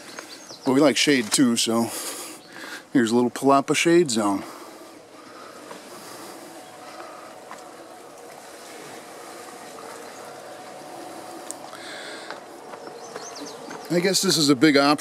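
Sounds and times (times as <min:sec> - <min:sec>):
water rushing and trickling: 0:03.8 - 0:15.0.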